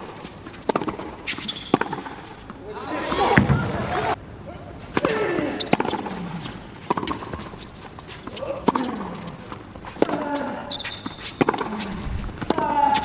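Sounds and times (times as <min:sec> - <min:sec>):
shoes squeaking on court: 0:00.0 - 0:03.8, 0:04.8 - 0:13.0
players grunting: 0:05.0 - 0:05.7.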